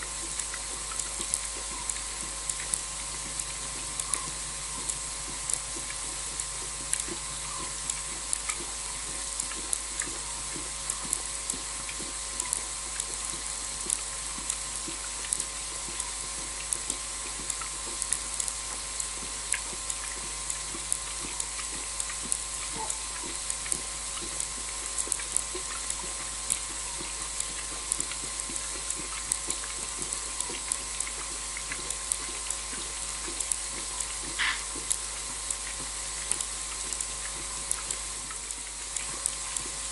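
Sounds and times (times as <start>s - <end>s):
low steady hum: 0.0s - 39.9s
sharp clicks and ticks: 0.0s - 39.9s
steady hiss: 32.3s - 35.6s.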